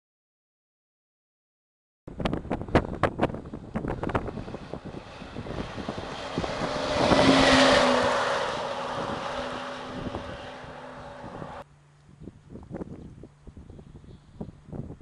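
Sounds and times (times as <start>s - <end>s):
wind buffeting microphone: 2.1s - 15.0s
fire engine driving past: 3.5s - 11.6s.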